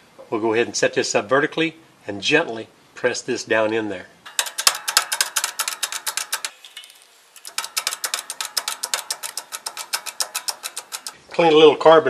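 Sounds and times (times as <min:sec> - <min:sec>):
power tool rapid tapping: 0:04.3 - 0:06.6, 0:07.4 - 0:11.2.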